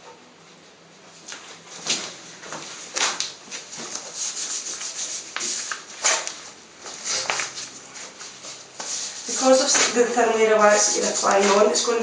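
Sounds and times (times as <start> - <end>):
hand rubbing wax strip on skin: 2.9 - 10.1.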